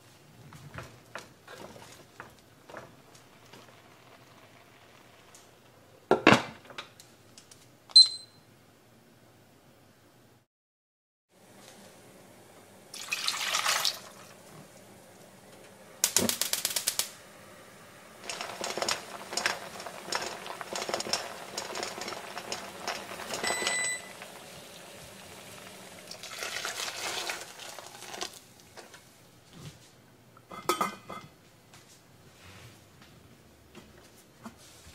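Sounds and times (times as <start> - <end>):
clams boiling with crackle: 0.3 - 6.1, 16.0 - 29.1
short beep: 7.9 - 8.4, 23.4 - 24.1
water pouring into pot: 12.9 - 14.4, 18.2 - 28.5.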